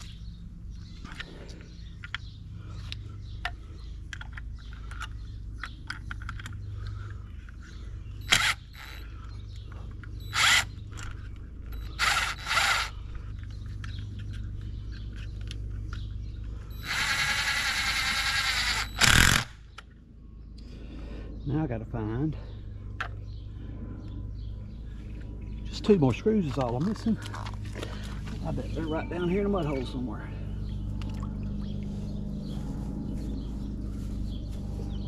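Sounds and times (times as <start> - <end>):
small clicks of screws: 2.9 - 7.6
cordless drill driving screws: 8.3 - 9.0, 10.3 - 10.7, 11.8 - 12.9, 16.8 - 19.5.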